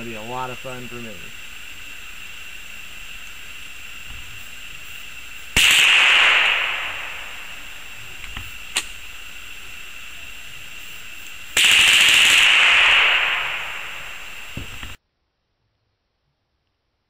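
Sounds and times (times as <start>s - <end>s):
rapid rifle shots: 5.6s - 7.5s, 11.6s - 14.5s
single gunshot crack: 5.6s - 7.5s, 11.6s - 15.0s.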